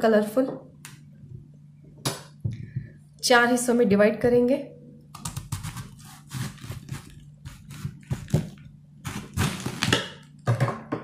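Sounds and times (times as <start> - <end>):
knife cutting cabbage on board: 5.3 - 10.0.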